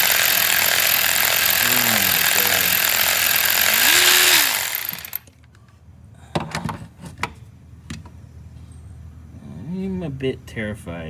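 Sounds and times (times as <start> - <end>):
impact driver hammering: 0.0 - 5.2.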